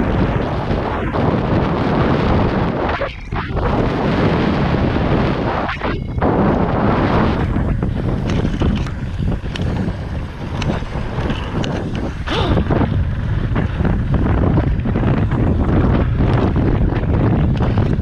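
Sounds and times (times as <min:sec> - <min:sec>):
wind rushing over microphone: 0:00.0 - 0:18.0
bike rattling clicks: 0:07.4 - 0:18.0.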